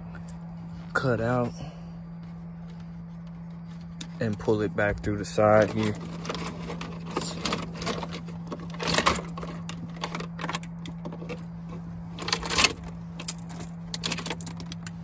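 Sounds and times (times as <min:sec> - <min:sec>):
steady low hum: 0:00.0 - 0:15.0
wires and plastic trim rattling: 0:05.3 - 0:15.0.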